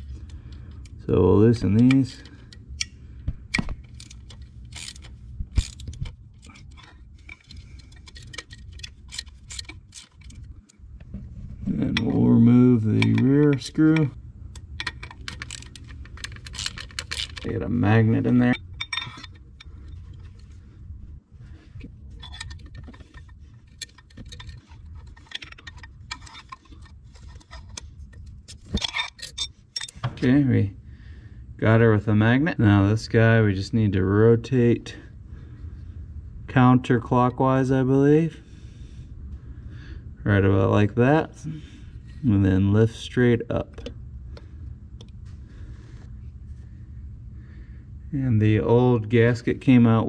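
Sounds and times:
metal tool clinking and scraping: 0:03.8 - 0:10.5, 0:11.8 - 0:20.6, 0:21.8 - 0:30.2
socket wrench ratchet clicks: 0:12.9 - 0:17.5.

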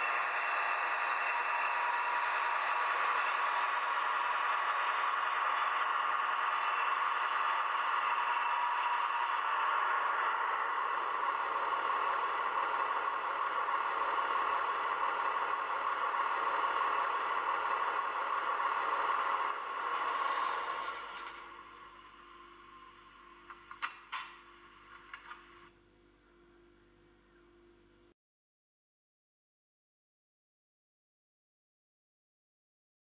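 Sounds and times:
model train rattling on track: 0:00.0 - 0:22.2
diesel engine sound from small speaker: 0:00.0 - 0:25.8.

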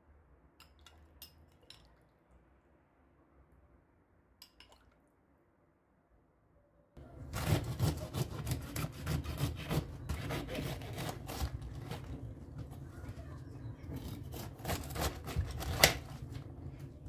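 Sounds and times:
knife cutting cabbage: 0:07.2 - 0:12.8, 0:13.7 - 0:16.4.

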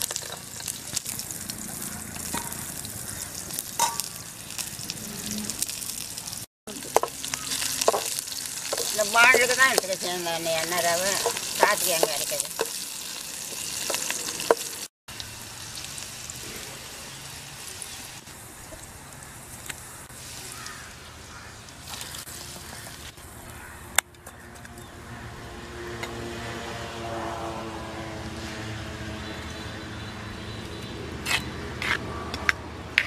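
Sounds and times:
onion and garlic sizzling in oil: 0:00.0 - 0:23.4
steady engine hum: 0:22.4 - 0:33.0.

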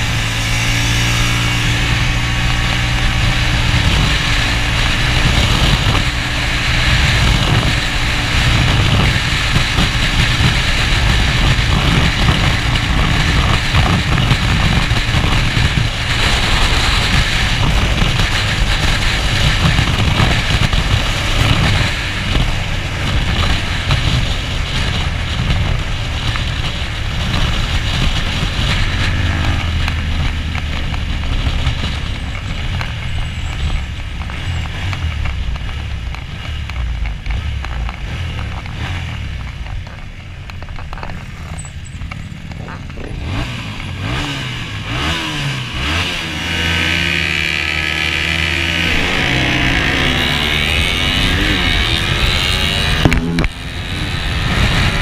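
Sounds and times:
motorcycle engine running hard: 0:00.0 - 0:55.0
wind rushing: 0:41.2 - 0:53.7.

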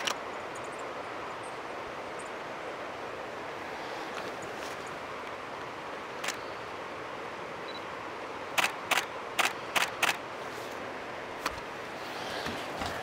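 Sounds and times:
steady outdoor background hiss: 0:00.0 - 0:13.0
sharp clicks: 0:08.6 - 0:10.2.

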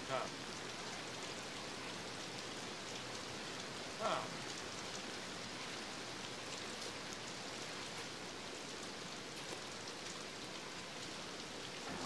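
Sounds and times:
steady rain falling: 0:00.0 - 0:12.0.

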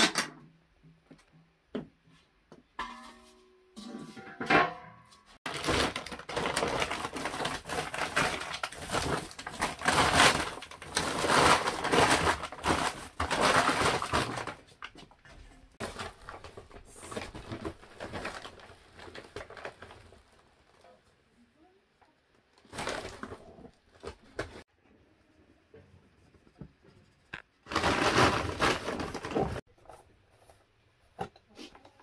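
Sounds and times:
steel basin ringing: 0:02.8 - 0:05.2
plastic sack rustling: 0:05.5 - 0:15.0, 0:15.6 - 0:20.8, 0:22.6 - 0:24.6, 0:27.6 - 0:29.6.

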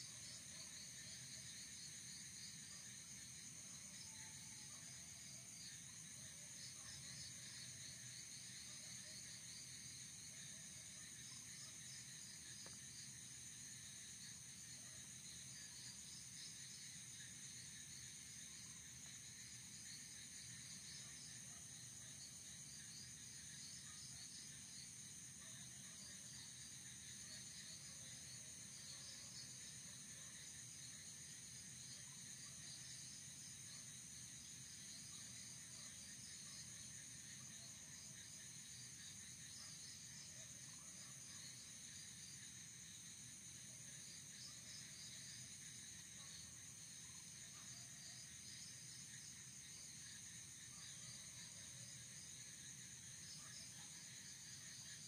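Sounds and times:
pulsing insect chirp: 0:00.0 - 0:55.0.

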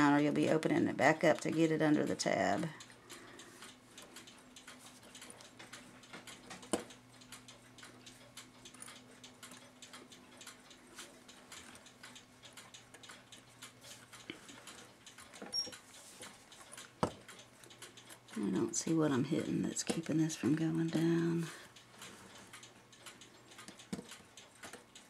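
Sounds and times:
faint steady hum: 0:00.0 - 0:25.0
light clicks of clock wheels: 0:00.0 - 0:25.0.

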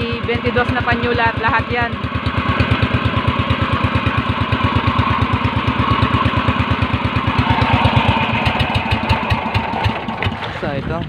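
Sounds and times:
boat engine puttering: 0:00.0 - 0:11.0.

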